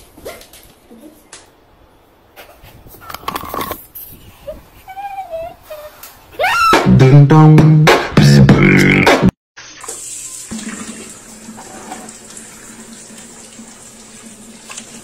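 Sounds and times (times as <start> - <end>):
water running from tap: 9.6 - 15.0.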